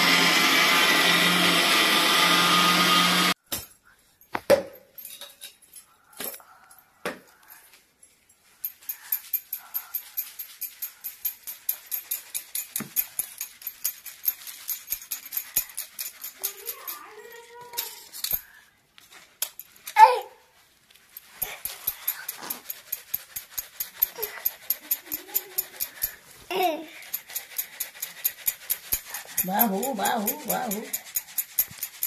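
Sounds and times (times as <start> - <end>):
metal sieve scraping ticks: 21.2 - 26.2, 27.0 - 32.0.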